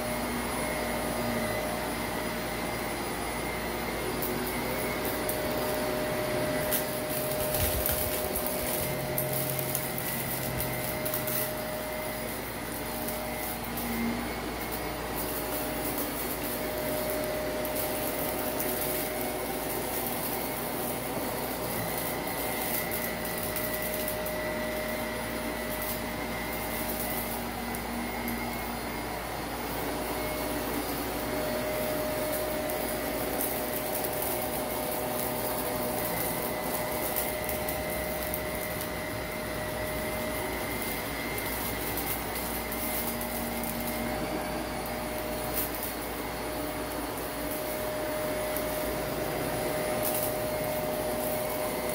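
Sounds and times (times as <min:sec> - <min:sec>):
vacuum cleaner on carpet: 0:00.0 - 0:51.9
grit crackling in vacuum: 0:00.2 - 0:51.9.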